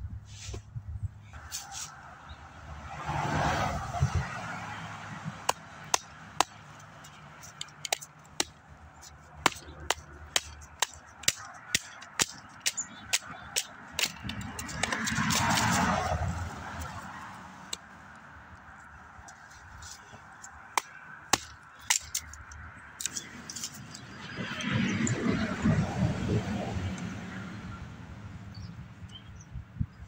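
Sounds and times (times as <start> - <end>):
knife batoning through wood: 5.4 - 16.9.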